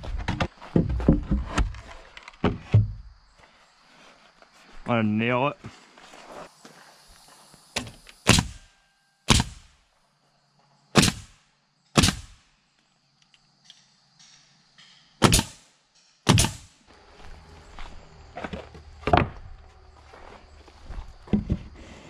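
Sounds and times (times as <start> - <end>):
knocks of boards handled: 0.0 - 3.0, 18.4 - 19.5
nail gun firing: 9.3 - 9.7, 11.0 - 11.4, 12.0 - 12.4, 15.2 - 15.7, 16.3 - 16.7.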